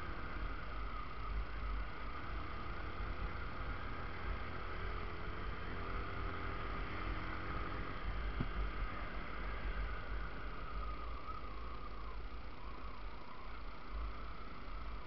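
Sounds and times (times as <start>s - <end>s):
road and wind noise: 0.0s - 15.0s.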